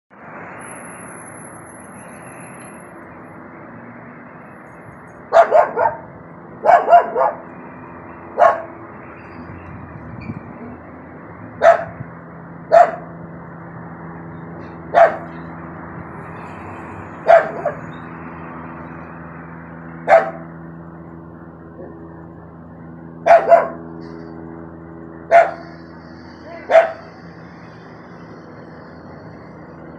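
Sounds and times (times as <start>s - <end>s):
steady background drone: 1.5s - 29.9s
dog barking: 5.3s - 7.5s, 8.4s - 8.8s, 11.6s - 12.0s, 12.7s - 13.1s, 14.9s - 15.4s, 17.2s - 17.8s, 20.1s - 20.5s, 23.2s - 23.8s, 25.3s - 25.7s, 26.7s - 27.1s.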